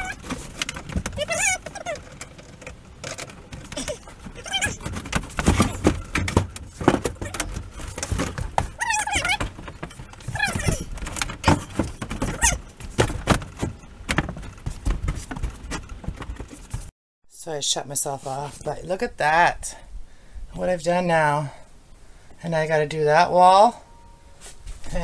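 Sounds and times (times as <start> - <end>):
high squeaks: 0.0 - 14.0
knocks and clatter of panels and tools: 0.0 - 16.9.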